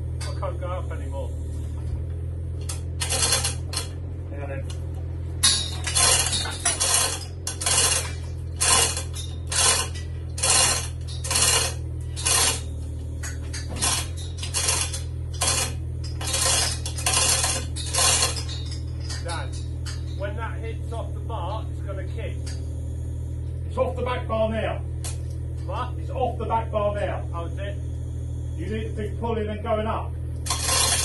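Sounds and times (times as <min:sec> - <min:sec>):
low hum: 0:00.0 - 0:31.0
chain hoist links rattling: 0:02.6 - 0:04.0, 0:05.4 - 0:20.4, 0:30.4 - 0:31.0.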